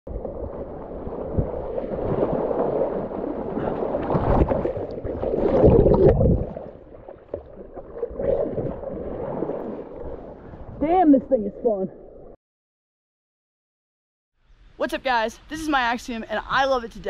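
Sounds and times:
paddle blades splashing: 0:00.1 - 0:10.8.

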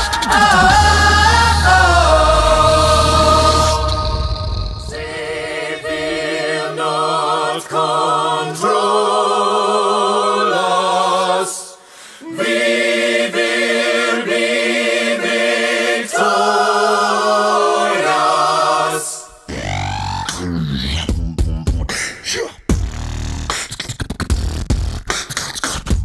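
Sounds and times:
wordless choir chords: 0:00.0 - 0:19.5.

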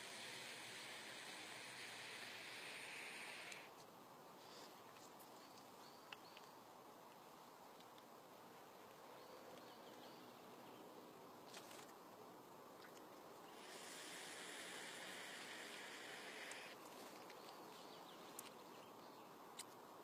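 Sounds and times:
e-cigarette draw hiss: 0:00.0 - 0:03.7, 0:13.6 - 0:16.8
faint forest ambience: 0:00.0 - 0:20.0.

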